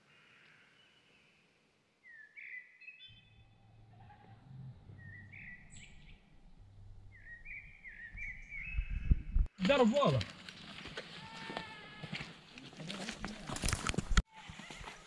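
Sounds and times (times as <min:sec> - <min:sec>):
wild bird calls: 0:02.0 - 0:09.3
low rumble: 0:03.2 - 0:09.5.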